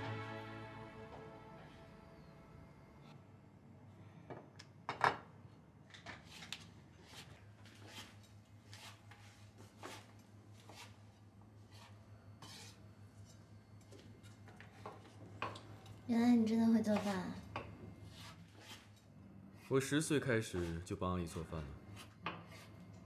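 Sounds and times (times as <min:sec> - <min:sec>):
low steady hum: 0:00.0 - 0:04.3.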